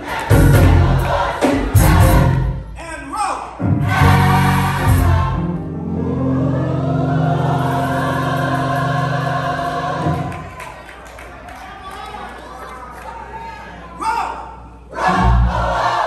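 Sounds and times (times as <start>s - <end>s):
gospel choir singing: 0.0s - 2.8s, 3.6s - 10.8s, 14.8s - 16.0s.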